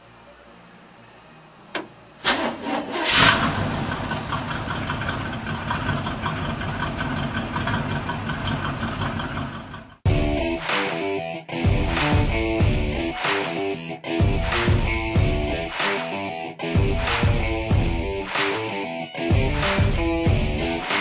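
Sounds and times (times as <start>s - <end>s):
engine idling: 2.3s - 10.0s.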